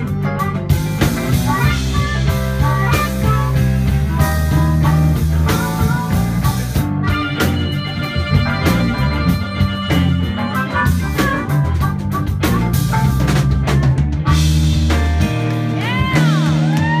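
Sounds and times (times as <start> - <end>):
harmonica playing: 0.0 - 13.4
drum kit hits: 0.0 - 17.0.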